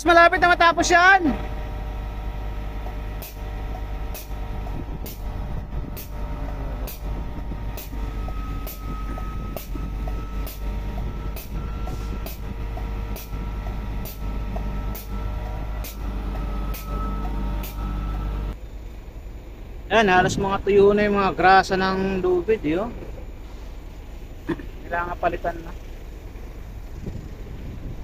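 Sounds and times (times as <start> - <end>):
diesel engine drone: 0.0 - 28.0
pneumatic grease pump puffing: 2.8 - 18.5.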